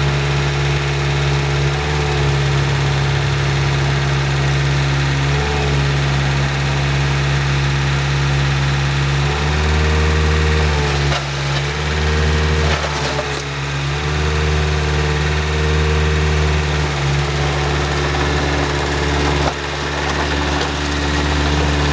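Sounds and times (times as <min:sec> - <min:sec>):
diesel engine running: 0:00.0 - 0:21.9
excavator hydraulics working: 0:16.7 - 0:21.9.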